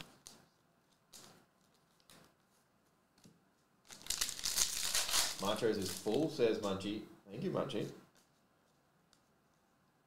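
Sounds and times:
trading cards rustling: 3.8s - 6.7s
foil card pack tearing: 3.9s - 6.2s.

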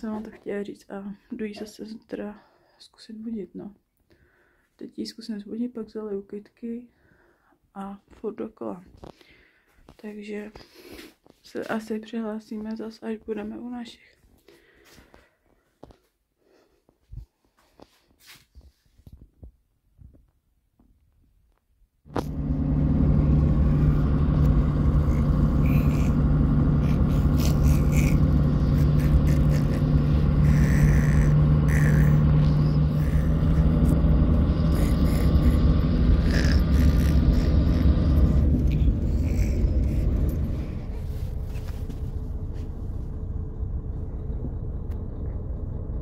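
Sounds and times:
bus engine drone: 22.1s - 46.0s.

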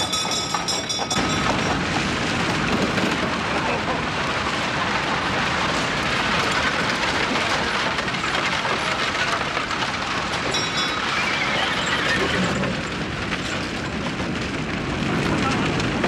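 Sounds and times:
high metallic ring: 0.0s - 1.7s
horse hooves: 0.0s - 3.7s, 4.5s - 16.0s
fire crackling: 0.0s - 16.0s
wagon clattering and rattling: 0.0s - 16.0s.

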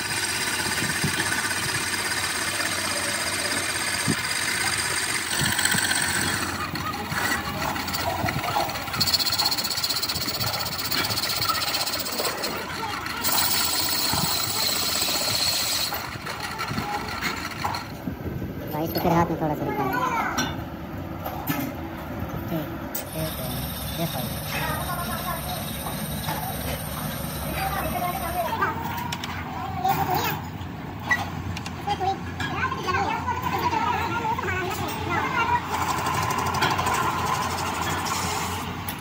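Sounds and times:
metal lathe running: 0.0s - 18.0s, 22.9s - 29.3s.

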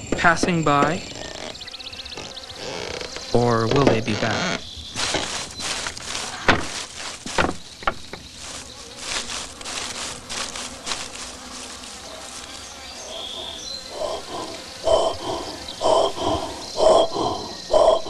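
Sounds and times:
scratchy rustling: 4.1s - 15.4s.

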